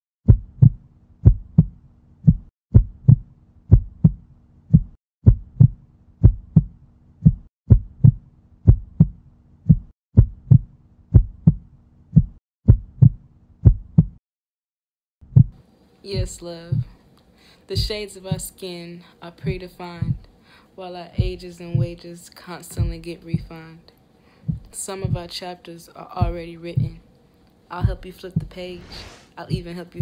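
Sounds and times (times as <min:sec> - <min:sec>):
heartbeat thumps: 0:00.3 - 0:14.2, 0:15.3 - 0:15.6, 0:16.2 - 0:17.0, 0:17.8 - 0:18.6, 0:19.4 - 0:20.3, 0:21.1 - 0:22.1, 0:22.7 - 0:23.7, 0:24.4 - 0:25.4, 0:26.2 - 0:27.0, 0:27.8 - 0:30.0
faint low hum: 0:15.7 - 0:30.0.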